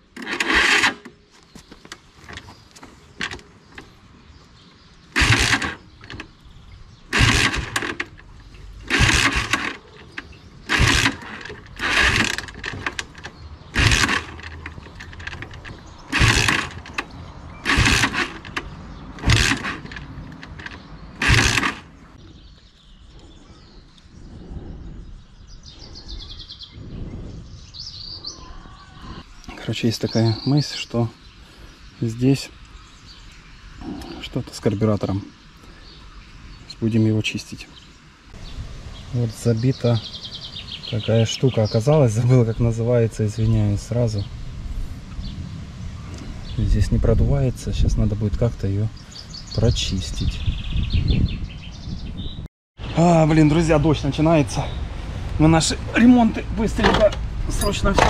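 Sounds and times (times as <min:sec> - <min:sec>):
motorcycle engine cranking: 0:00.0 - 0:01.2, 0:03.2 - 0:03.9, 0:05.1 - 0:06.4, 0:07.1 - 0:22.0, 0:56.7 - 0:58.0.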